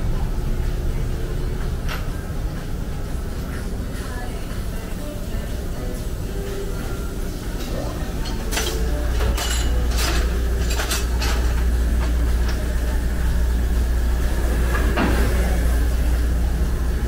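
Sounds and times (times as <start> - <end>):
steady low hum: 0.0 - 17.0
metal clinking and tapping: 8.2 - 12.6.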